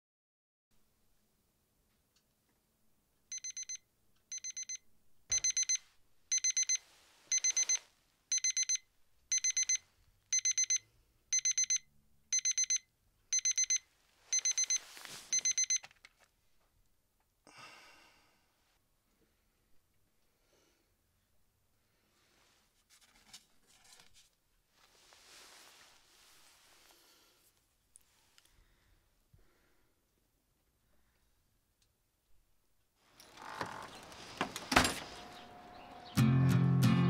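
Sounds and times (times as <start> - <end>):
alarm clock beeping: 3.3 - 15.8
rustling: 14.0 - 16.4, 22.2 - 28.5, 33.0 - 35.8.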